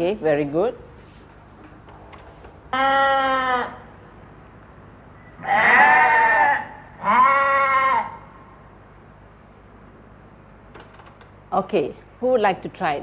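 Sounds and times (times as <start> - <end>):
sheep bleating: 5.4 - 8.3.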